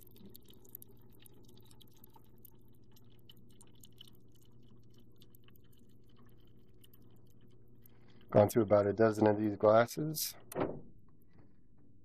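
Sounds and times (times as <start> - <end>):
light ticks and crackles: 0.0 - 8.6
faint steady hum: 0.0 - 12.0.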